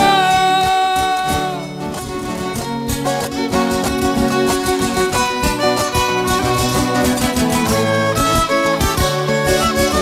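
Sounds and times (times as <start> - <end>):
plucked and strummed guitar: 0.0 - 10.0
violin melody: 0.0 - 10.0.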